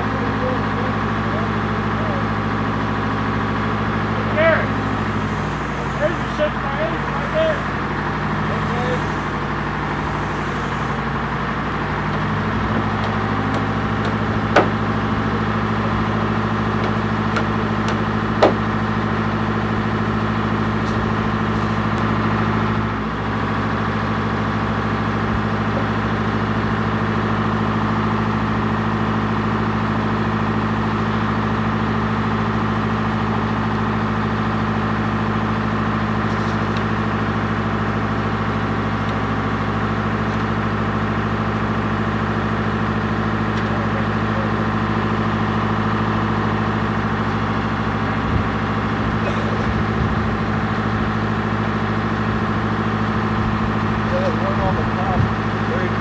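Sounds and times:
engine idling: 0.0 - 56.0
sharp knocks: 12.1 - 15.0, 16.8 - 18.7.

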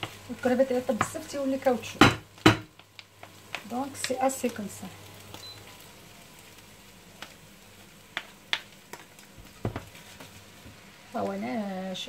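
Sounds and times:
seafood sauteing in a pan: 0.0 - 12.0
wooden spoon clicking on pan: 8.1 - 9.0.

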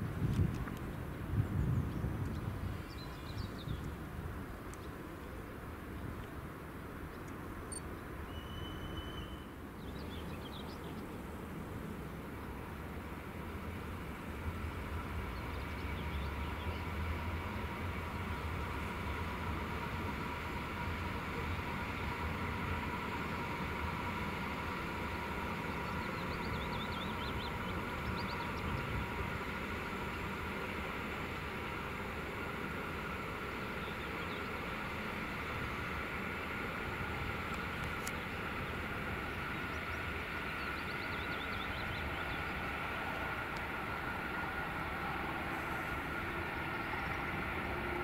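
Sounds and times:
train engine rumble: 0.0 - 48.0
small birds chirping: 25.7 - 28.9.

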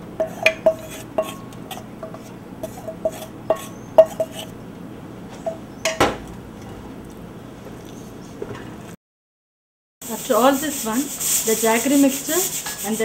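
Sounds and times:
spoon clinking against pot: 0.2 - 4.5.

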